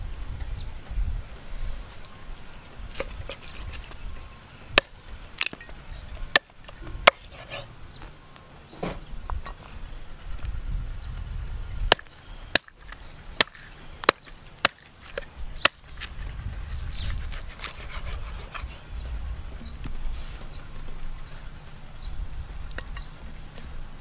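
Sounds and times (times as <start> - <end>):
cleaver chopping on wooden block: 11.9 - 12.8.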